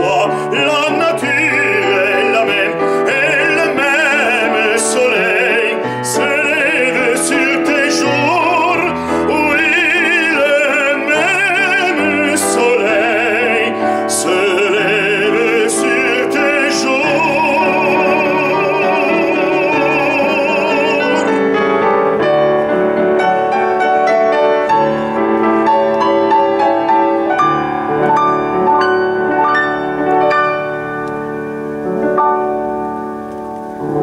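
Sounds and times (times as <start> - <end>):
man singing with vibrato: 0.0 - 22.6
grand piano playing: 0.0 - 34.0.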